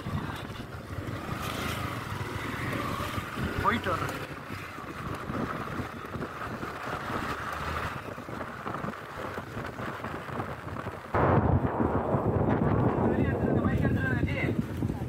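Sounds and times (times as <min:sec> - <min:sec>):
vehicle rumble: 0:00.0 - 0:15.0
wind on microphone: 0:04.4 - 0:15.0.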